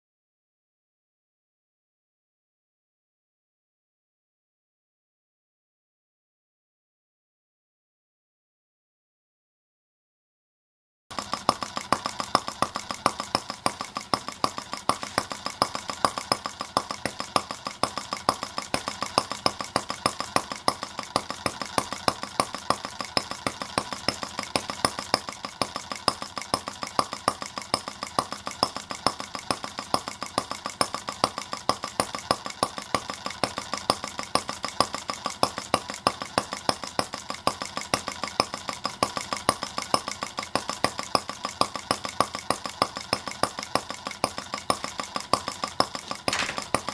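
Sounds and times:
model engine running: 11.1s - 46.9s.

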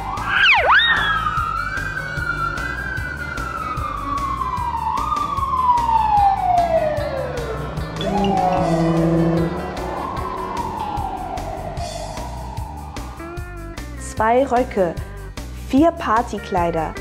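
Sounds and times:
siren winding down: 0.1s - 13.8s
background music with beat: 5.2s - 14.0s.

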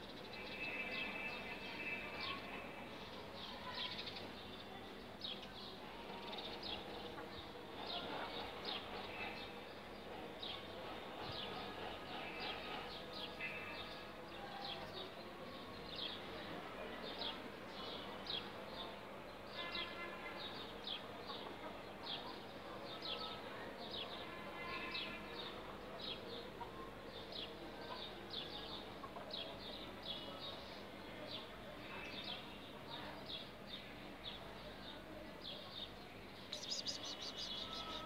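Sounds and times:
small birds chirping: 33.3s - 38.0s.

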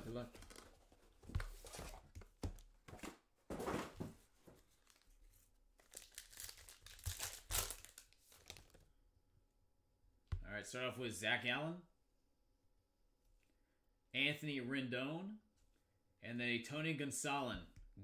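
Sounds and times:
foil wrapper crinkling and tearing: 5.8s - 8.7s.

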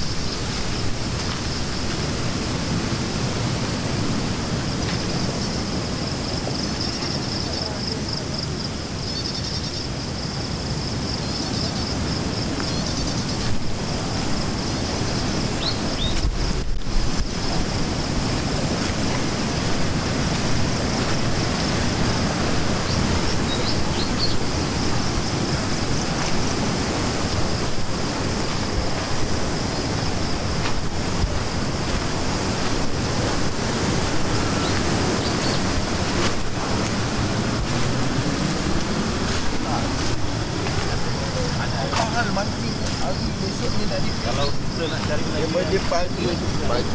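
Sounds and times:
river rushing over rocks: 0.0s - 9.0s, 9.9s - 46.9s
insects chirring: 0.0s - 46.9s
faint bird chirps: 9.0s - 9.9s.

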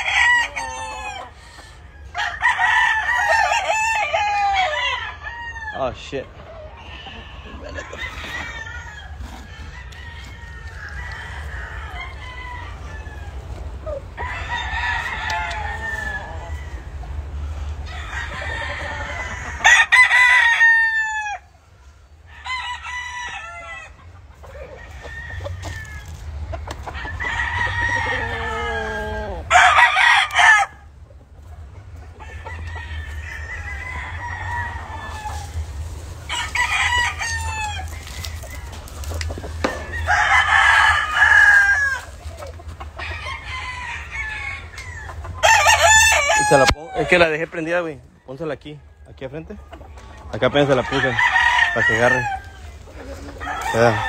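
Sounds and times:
chickens clucking: 0.0s - 5.2s, 5.8s - 54.0s
roosters crowing: 0.0s - 54.0s.

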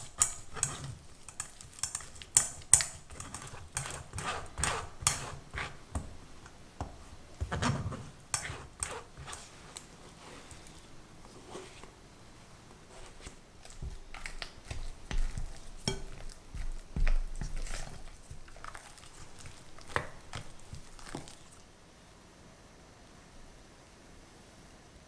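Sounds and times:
spatula scraping glass bowl: 0.0s - 5.8s, 7.5s - 9.6s.

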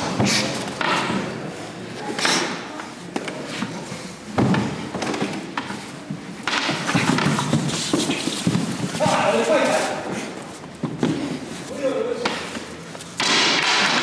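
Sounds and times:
fighters scuffling on wooden floor: 3.4s - 11.8s.

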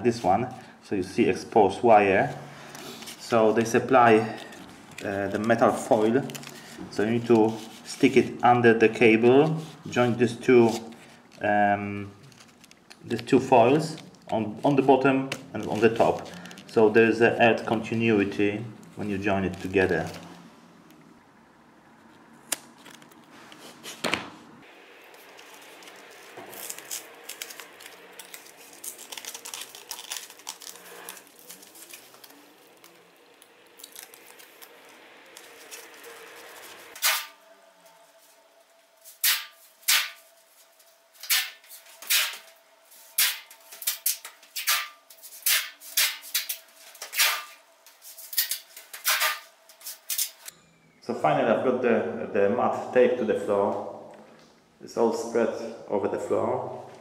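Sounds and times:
foil tape crinkling: 2.6s - 8.2s, 12.2s - 17.0s, 22.4s - 23.3s, 25.0s - 37.4s, 39.0s - 50.5s
tape pulled off rasping: 12.2s - 13.3s, 25.1s - 37.4s, 39.0s - 50.5s
scissors snipping foil tape: 25.4s - 33.0s, 33.8s - 37.4s, 39.1s - 40.2s, 41.2s - 50.5s.

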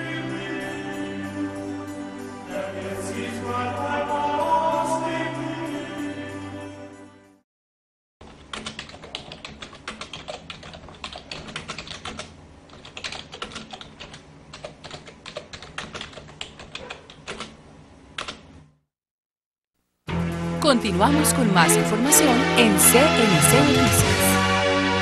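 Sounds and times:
keystroke clicks: 8.5s - 17.6s.

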